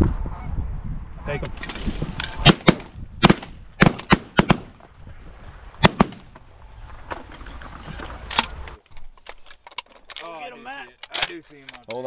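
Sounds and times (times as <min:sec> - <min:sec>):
shotgun shots: 0:02.4 - 0:04.8, 0:05.8 - 0:06.3.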